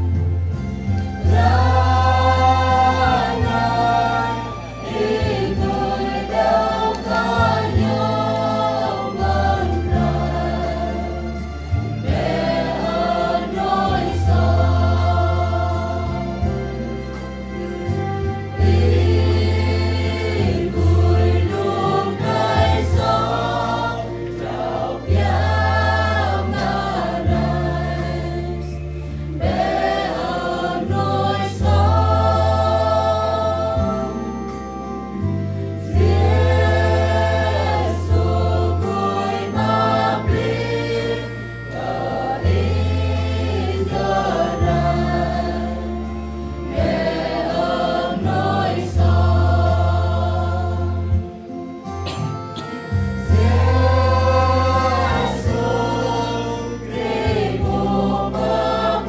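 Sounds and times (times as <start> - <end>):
deep bass accompaniment: 0.0 - 59.0
mixed choir singing a hymn: 0.0 - 59.0.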